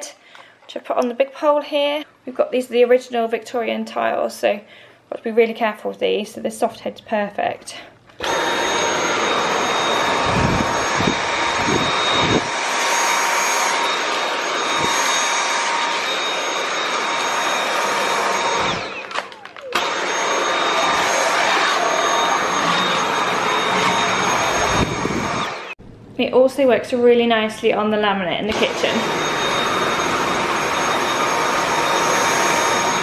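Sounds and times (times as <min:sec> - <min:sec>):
vacuum cleaner running: 0:08.2 - 0:25.8, 0:28.5 - 0:33.0.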